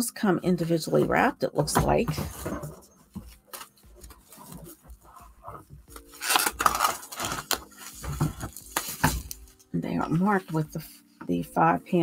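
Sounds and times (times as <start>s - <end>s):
plastic wrapping crinkling: 3.3s - 9.7s.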